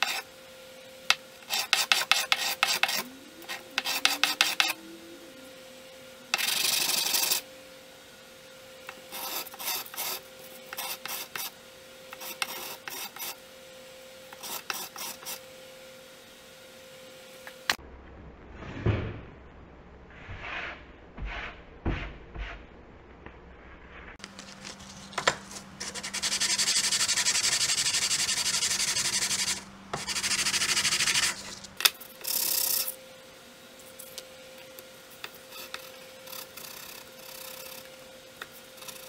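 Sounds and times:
plane blade rasping on sandpaper: 0:00.0 - 0:00.3, 0:01.4 - 0:04.8, 0:06.3 - 0:07.4, 0:08.9 - 0:13.4, 0:14.3 - 0:15.4, 0:24.4 - 0:31.8
paper swishes: 0:23.9 - 0:26.0.

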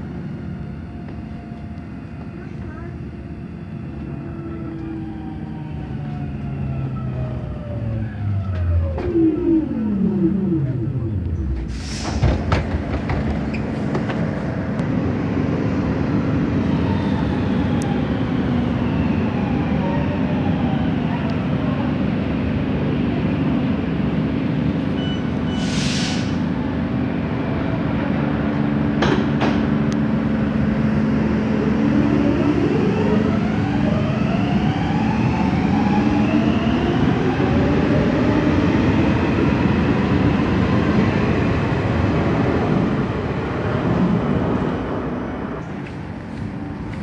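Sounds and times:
train low rumble: 0:00.0 - 0:47.0
short hiss: 0:25.6 - 0:26.4.

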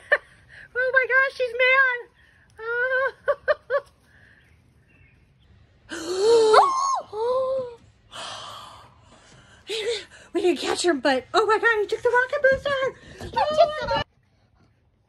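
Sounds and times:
person crying out: 0:06.0 - 0:07.7.

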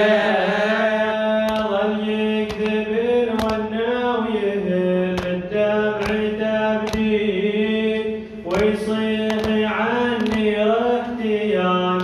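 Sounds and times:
man chanting a lament: 0:00.0 - 0:12.0
short sharp hits: 0:02.4 - 0:03.8, 0:05.1 - 0:07.2.

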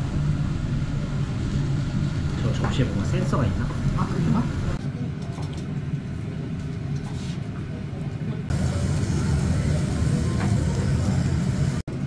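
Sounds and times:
steady low hum: 0:00.0 - 0:05.2, 0:05.9 - 0:12.0
even hiss: 0:08.5 - 0:11.8.

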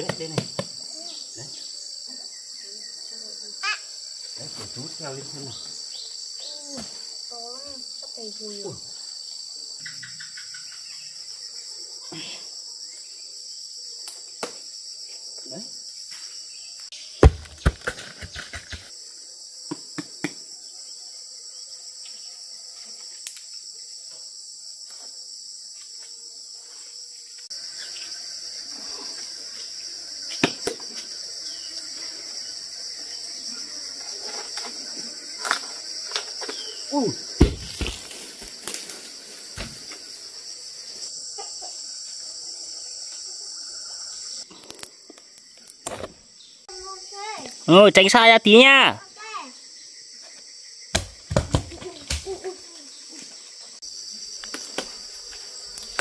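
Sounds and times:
insects trilling: 0:00.0 - 0:56.0
louder thumps: 0:17.2 - 0:18.8, 0:37.4 - 0:38.0.

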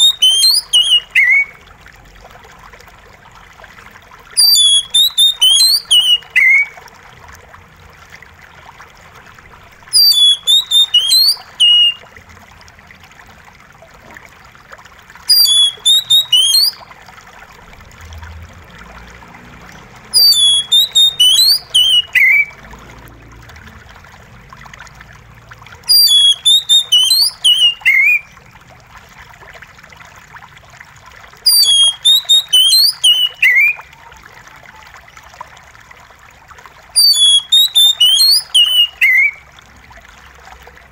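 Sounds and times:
bird singing whistled notes: 0:00.0 - 0:01.6, 0:04.4 - 0:06.8, 0:09.9 - 0:12.0, 0:15.3 - 0:16.8, 0:20.1 - 0:22.6, 0:25.9 - 0:28.3, 0:31.5 - 0:33.8, 0:37.0 - 0:39.4
running water trickling: 0:00.0 - 0:40.9.

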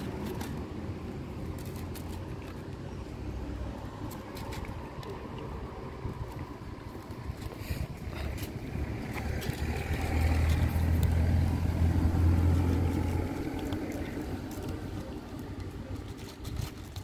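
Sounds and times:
vehicle engine passing by: 0:07.2 - 0:16.3.

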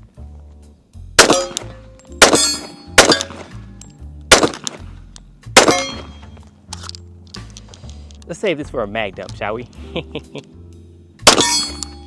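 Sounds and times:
background music with bass: 0:00.0 - 0:12.0
pistol shots: 0:01.2 - 0:03.6, 0:04.3 - 0:04.9, 0:05.6 - 0:06.2, 0:11.2 - 0:12.0
steel target clanging: 0:01.2 - 0:03.6, 0:05.6 - 0:06.4, 0:11.3 - 0:12.0.

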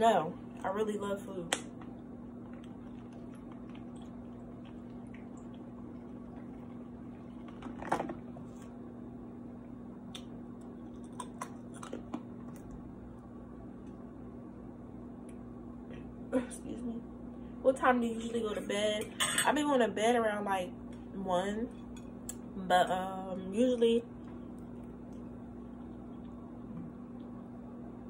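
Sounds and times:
steady low hum: 0:00.0 - 0:28.0
soft clicks and mouth sounds: 0:10.1 - 0:12.8.

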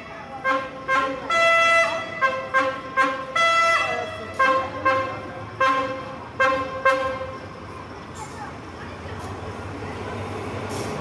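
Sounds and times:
locomotive horn blasts: 0:00.0 - 0:07.4.

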